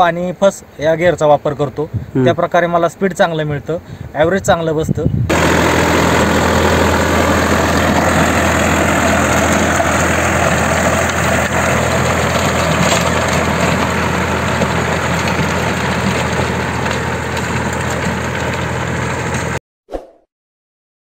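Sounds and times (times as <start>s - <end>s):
tractor diesel engine running: 5.3s - 19.6s.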